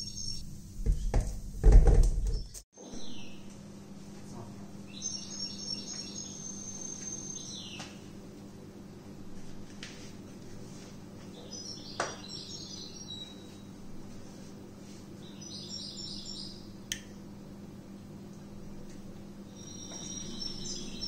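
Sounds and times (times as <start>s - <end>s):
steady low hum: 2.8s - 21.0s
small bird chirping: 4.9s - 7.9s, 19.5s - 21.0s.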